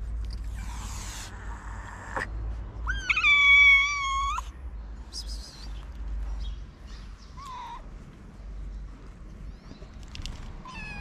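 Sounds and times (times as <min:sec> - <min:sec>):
cat meowing: 0:02.9 - 0:04.5, 0:10.6 - 0:11.0.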